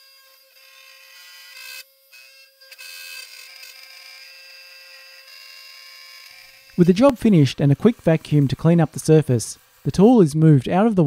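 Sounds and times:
bit cutting plastic: 0.0 - 10.2
router spindle whining: 0.0 - 11.0.

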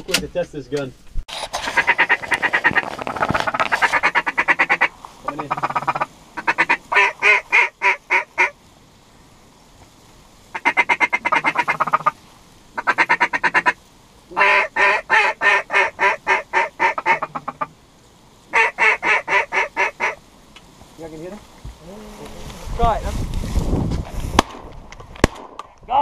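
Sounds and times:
duck call quacks: 1.6 - 8.5, 10.5 - 12.2, 12.8 - 17.7, 18.5 - 20.2.

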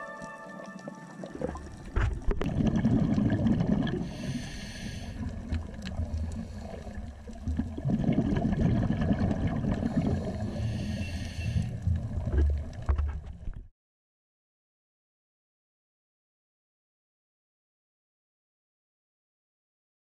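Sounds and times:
underwater exhaled bubbles gurgling: 0.5 - 13.4
hissing inhale through regulator: 3.9 - 7.3, 9.6 - 11.9.

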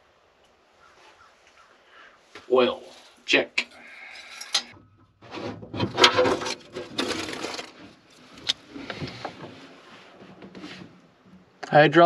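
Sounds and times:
metal scraping and rubbing: 3.9 - 11.4.

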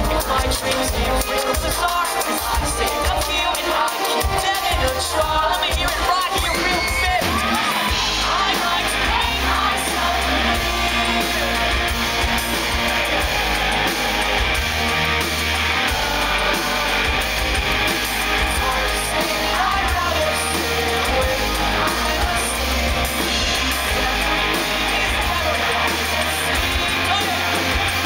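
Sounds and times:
live pop-rock band: 0.0 - 28.0
man singing: 0.0 - 28.0.

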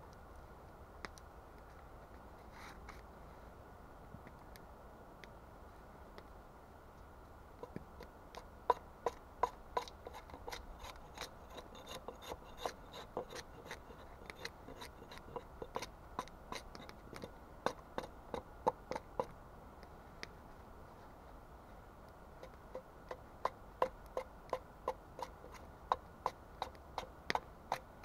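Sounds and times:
knife cutting wood: 8.4 - 19.3.

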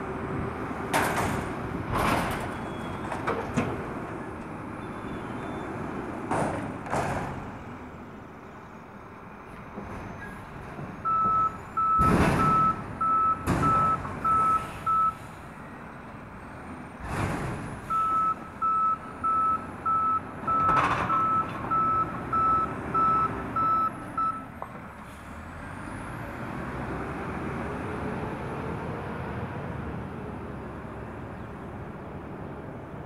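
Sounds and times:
truck reversing alarm beeping: 11.0 - 15.3, 17.8 - 24.5
diesel engine revving: 25.0 - 31.2.

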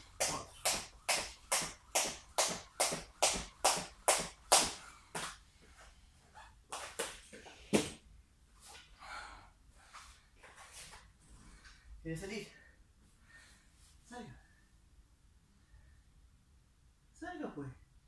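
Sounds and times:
skipping rope slapping floor mat: 0.0 - 5.4, 6.7 - 8.0.

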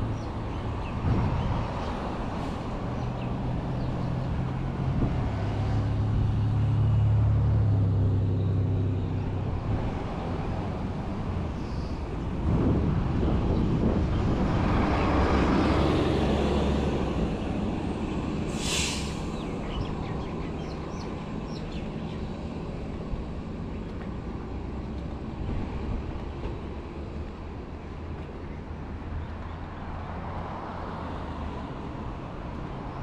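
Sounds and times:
street traffic: 0.0 - 33.0
vehicle passing close by: 1.0 - 11.5, 12.4 - 21.6
short hiss: 18.5 - 19.3.

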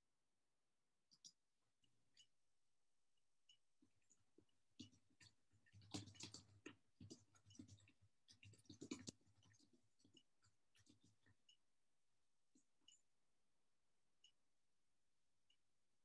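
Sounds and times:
faint clicks and scratches: 1.1 - 2.4, 3.4 - 11.7, 12.5 - 13.1.

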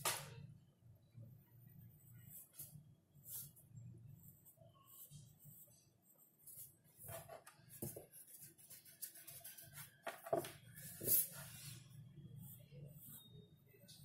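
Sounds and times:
pencil scratching on paper: 4.2 - 13.3.

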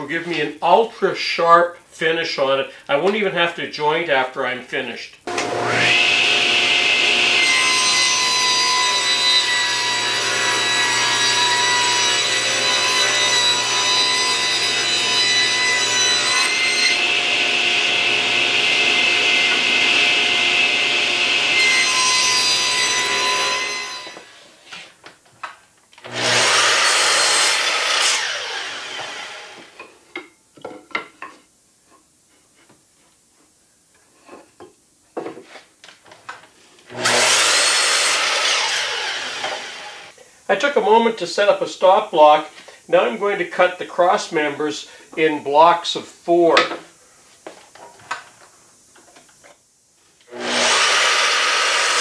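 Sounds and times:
table saw ripping a board: 5.3 - 24.3, 26.0 - 29.8, 36.9 - 40.1, 50.3 - 52.0
miter saw crosscuts: 36.9 - 40.1, 50.3 - 52.0.

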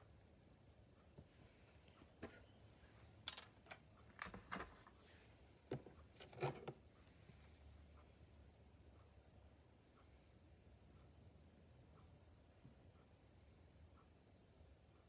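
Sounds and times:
faint clicks and taps: 5.6 - 8.1.

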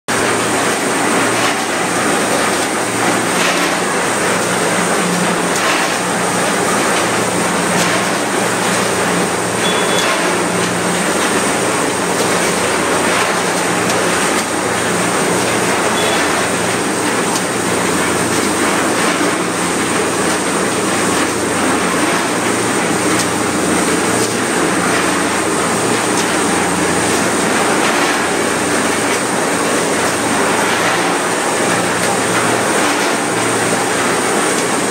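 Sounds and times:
high machine whine: 0.1 - 32.4
machine din with low hum: 0.1 - 34.9
faint beeps: 9.6 - 10.1.

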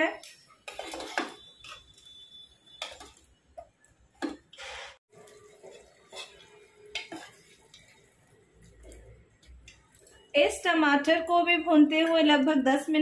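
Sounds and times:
ladle scraping metal pan: 0.6 - 2.0, 4.2 - 8.0.

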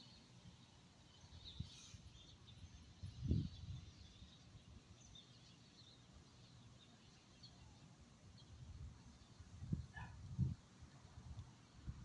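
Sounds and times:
faint high bird chirps: 0.0 - 10.2
wind buffeting microphone: 2.9 - 4.3, 8.5 - 12.0.

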